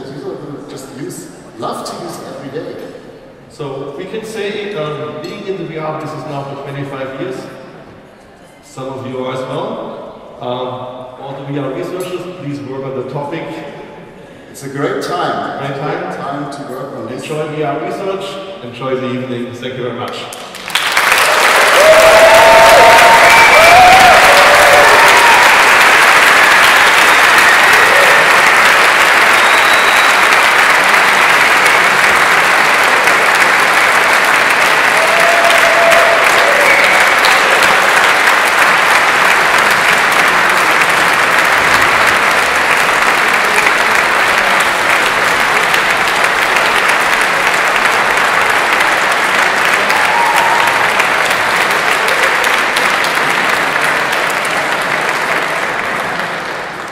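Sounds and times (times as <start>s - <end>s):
audience applauding: 20.3s - 56.9s.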